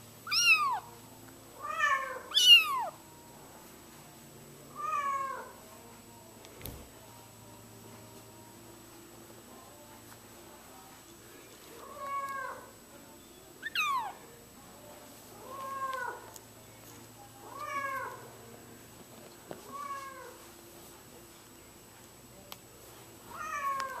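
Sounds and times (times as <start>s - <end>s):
kitten meowing: 0.2s - 0.8s, 1.7s - 3.0s, 13.6s - 14.2s.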